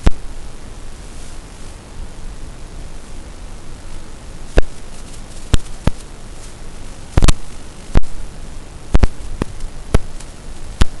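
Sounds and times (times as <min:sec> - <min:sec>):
loud sharp pops: 0:00.0 - 0:00.3, 0:04.5 - 0:06.1, 0:07.1 - 0:08.2, 0:08.9 - 0:11.0
radio static hiss: 0:00.0 - 0:11.0.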